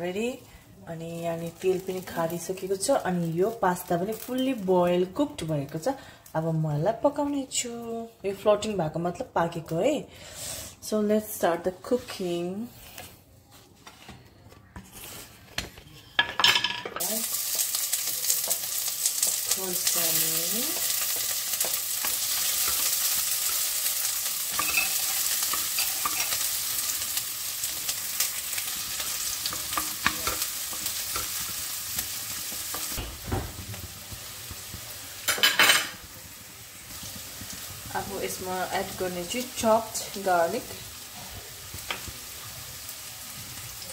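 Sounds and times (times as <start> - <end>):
food sizzling in hot oil: 1.1 - 5.3, 16.6 - 43.9
spatula scraping a pan: 20.7 - 32.1.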